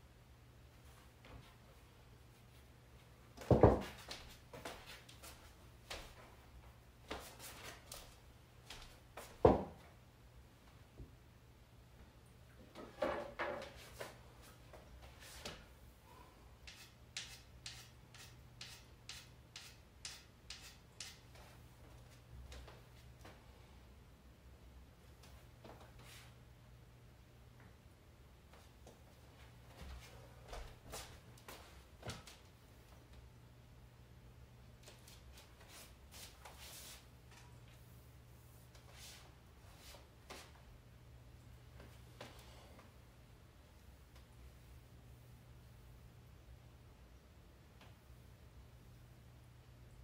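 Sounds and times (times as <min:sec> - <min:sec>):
faint low room hum: 0:00.0 - 0:50.0
chalk scraping on cue tip: 0:16.6 - 0:21.3.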